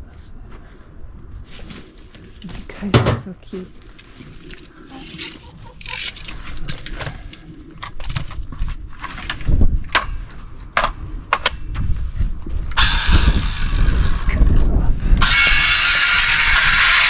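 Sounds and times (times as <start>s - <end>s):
rustling: 0.1s - 9.7s.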